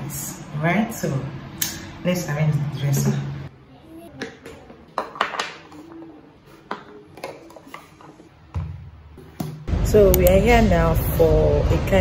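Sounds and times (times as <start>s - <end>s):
plastic bottles knocking on marble: 4.2s - 5.8s.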